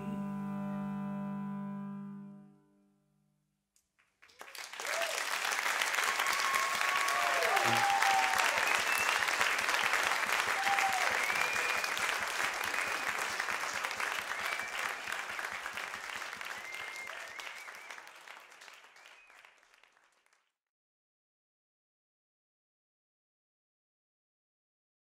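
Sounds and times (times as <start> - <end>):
audience applauding and cheering: 4.2 - 20.5
high whistles: 6.4 - 9.4, 10.5 - 13.2, 14.2 - 15.3, 16.4 - 18.2.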